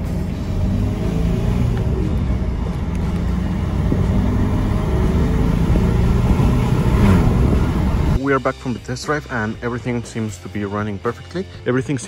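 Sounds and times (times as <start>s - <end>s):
diesel engine accelerating: 0.0s - 8.2s
road noise: 0.0s - 8.2s.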